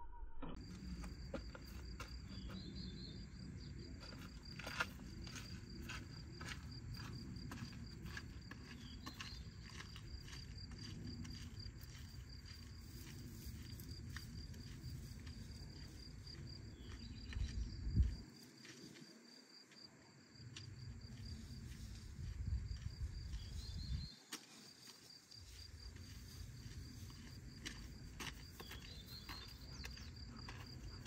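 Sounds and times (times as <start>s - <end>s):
insects chirring: 0.6s - 31.0s
wind rumble on microphone: 10.7s - 18.2s, 21.1s - 24.2s.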